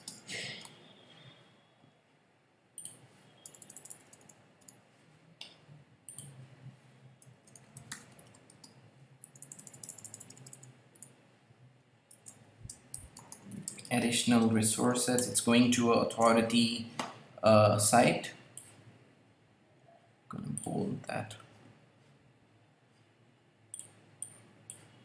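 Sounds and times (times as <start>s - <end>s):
computer keyboard typing: 0.0s - 0.8s, 2.8s - 4.8s, 7.2s - 11.2s, 12.1s - 14.0s.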